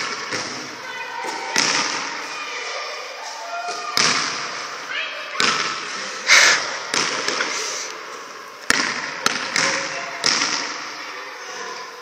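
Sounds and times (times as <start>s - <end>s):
basketball bouncing on gym floor: 4.0s - 4.4s, 6.9s - 7.4s, 8.6s - 10.8s.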